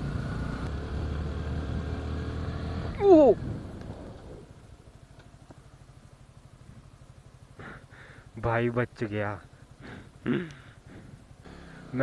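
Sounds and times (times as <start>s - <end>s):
motorcycle engine running: 0.0s - 12.0s
wind on microphone: 3.3s - 4.6s.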